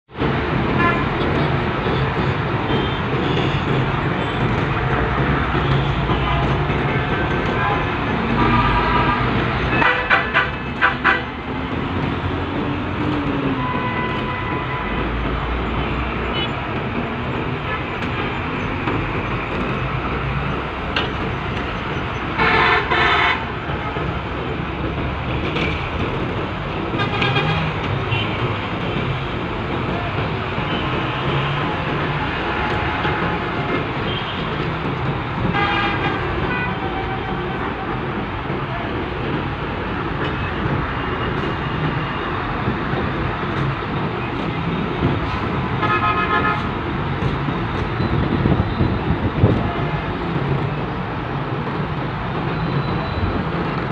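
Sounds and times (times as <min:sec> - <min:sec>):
engine and machinery noise: 0:00.1 - 0:53.9
truck horn toot: 0:22.4 - 0:23.4.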